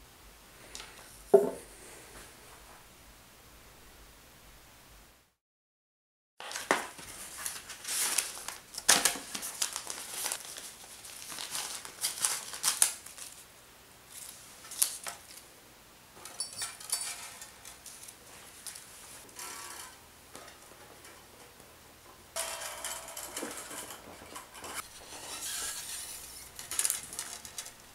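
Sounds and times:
string packet crinkling and tearing: 6.5s - 13.5s.

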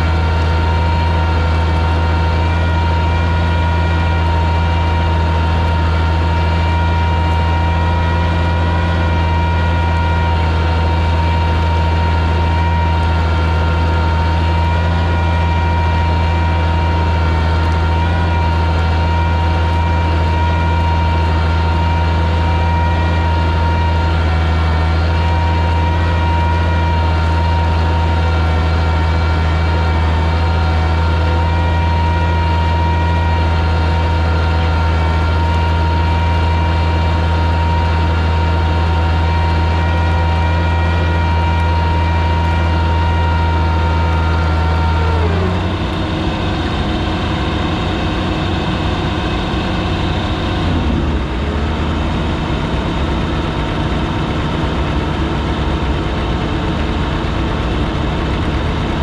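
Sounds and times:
tractor engine running under load: 0.0s - 59.0s.

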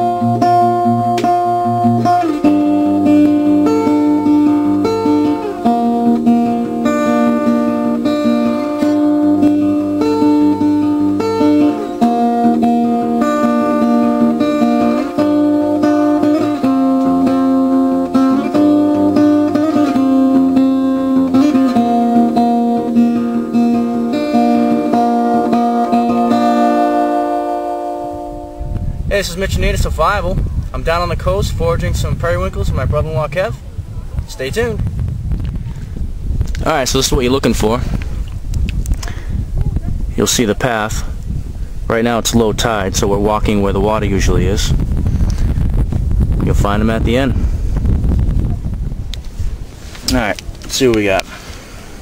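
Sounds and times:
acoustic guitar strumming: 0.0s - 31.0s.

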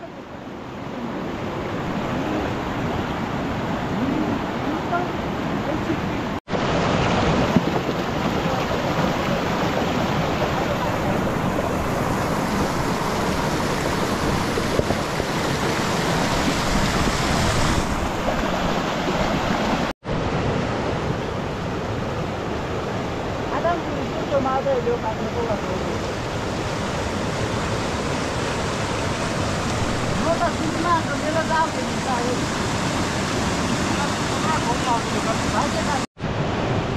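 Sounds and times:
river rushing over rocks: 0.0s - 36.9s.

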